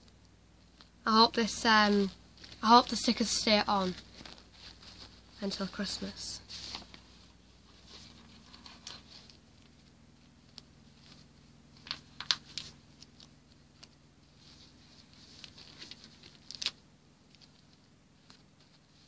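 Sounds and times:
sticker sheet rustling and crinkling: 0.6s - 19.0s
sharp paper crackles: 1.8s - 5.6s, 7.8s - 19.0s.

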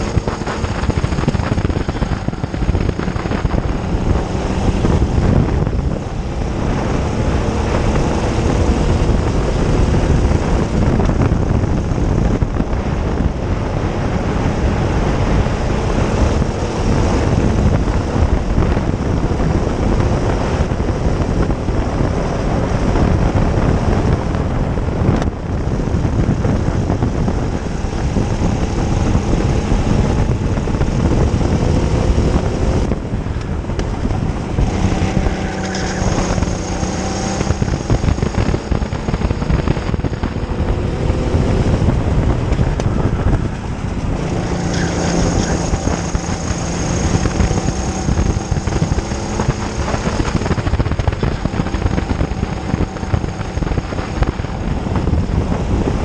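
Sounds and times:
kart engine revving: 0.0s - 56.0s
wind buffeting microphone: 0.0s - 56.0s.

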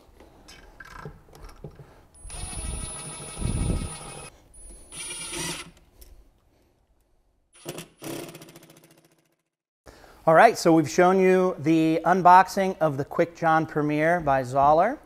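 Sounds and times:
cordless drill motor whining: 2.2s - 5.8s.

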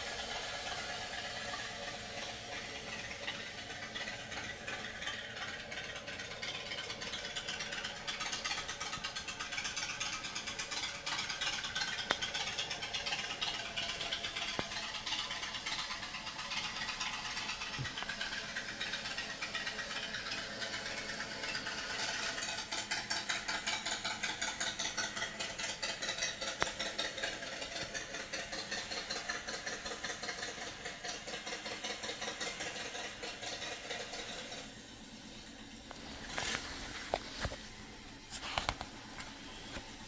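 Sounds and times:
engine idling: 0.0s - 40.0s
book pages being handled: 35.9s - 39.9s.

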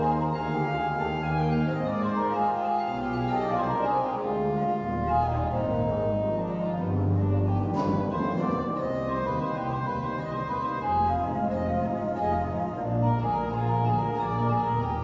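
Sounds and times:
church organ chords: 0.0s - 15.0s
organ pedal bass notes: 0.0s - 15.0s.

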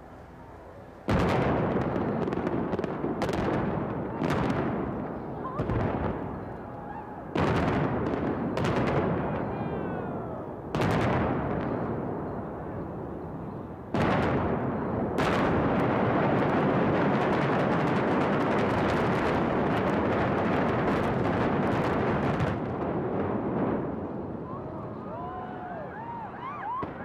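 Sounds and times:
explosion booms: 1.1s - 6.5s, 7.3s - 10.0s, 13.9s - 24.3s
falling whistle: 24.4s - 27.0s.

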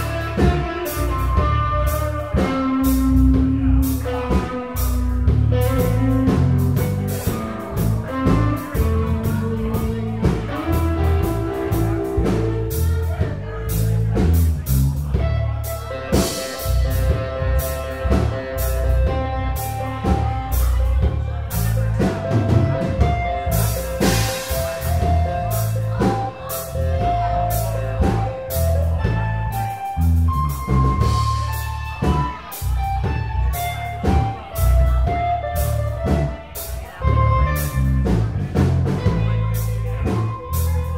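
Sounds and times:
electric bass line: 0.0s - 40.9s
electric guitar: 0.0s - 40.9s
drum kit hits: 22.0s - 29.6s.

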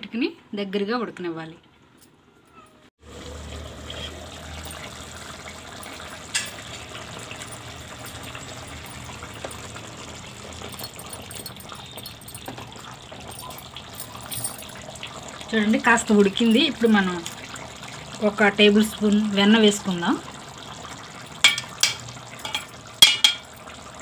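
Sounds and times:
curry bubbling in a pot: 3.0s - 14.0s, 14.7s - 24.0s
sharp metal clink: 21.5s - 23.5s.

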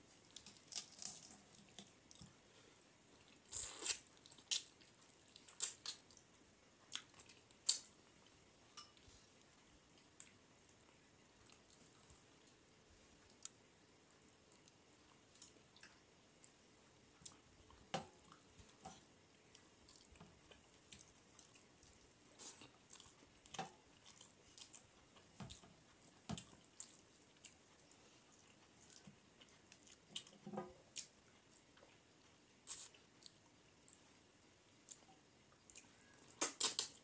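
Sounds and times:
wet chewing sounds: 17.2s - 34.0s.

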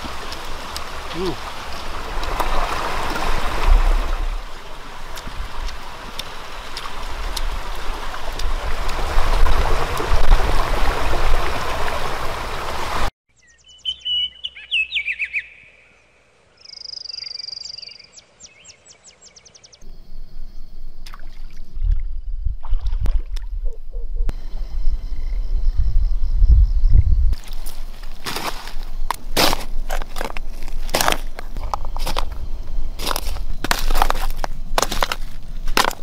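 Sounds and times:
stream flowing: 0.0s - 13.1s
small birds chirping and trilling: 13.3s - 19.8s.

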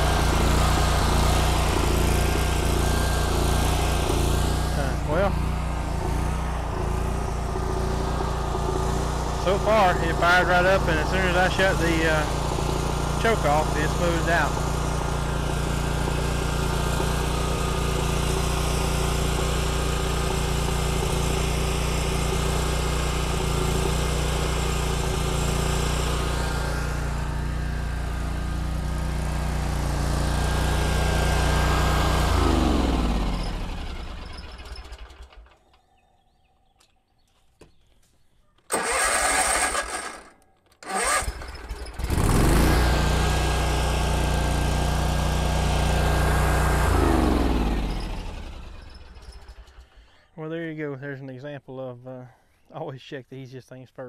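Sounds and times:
mower engine running: 0.0s - 35.8s, 38.7s - 50.2s
engine cranking: 32.3s - 35.8s, 38.7s - 42.9s, 46.8s - 50.2s.

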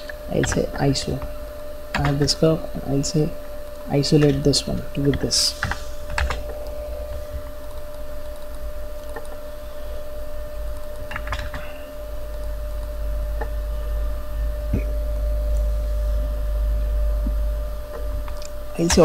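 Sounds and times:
steady low hum: 0.0s - 19.0s
computer keys and mouse clicking: 0.4s - 0.7s, 4.2s - 6.8s, 10.7s - 11.7s.

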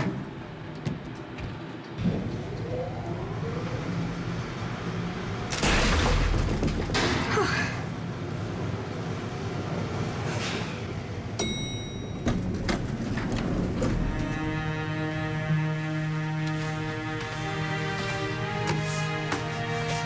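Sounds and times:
soft music: 13.9s - 20.0s.

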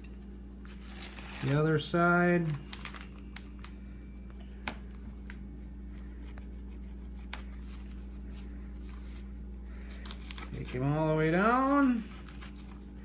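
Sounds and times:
steady low hum: 0.0s - 13.0s
paper rustling: 0.6s - 1.8s, 2.4s - 3.8s, 4.6s - 13.0s.

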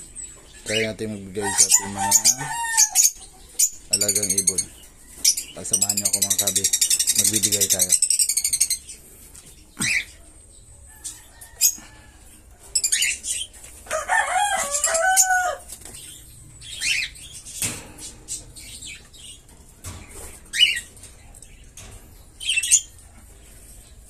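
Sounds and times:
parrots chirping: 0.0s - 9.0s, 9.8s - 10.2s, 12.7s - 21.7s, 22.4s - 23.0s
birds fluttering: 0.0s - 24.0s
rooster crowing: 1.4s - 3.2s, 13.8s - 15.7s.

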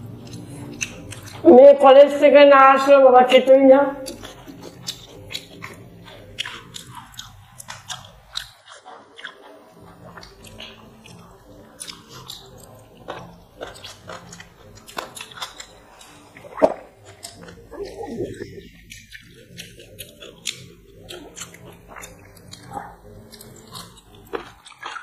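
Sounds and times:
people chewing: 0.0s - 1.6s, 4.0s - 25.0s
small clicks and smacks: 0.2s - 1.4s, 4.0s - 17.6s.

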